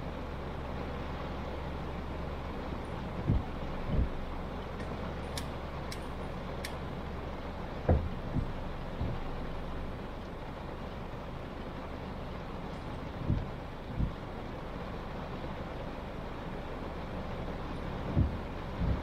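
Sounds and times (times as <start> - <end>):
low car rumble: 0.0 - 19.0
rain and wet tyres hissing: 0.0 - 19.0
dull thumps: 7.8 - 9.3.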